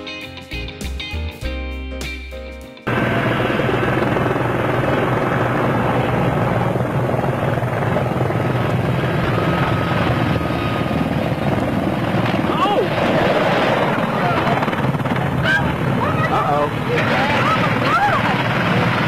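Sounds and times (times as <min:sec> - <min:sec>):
guitar music: 0:00.0 - 0:04.1
helicopter rotor and turbine noise: 0:02.9 - 0:19.0.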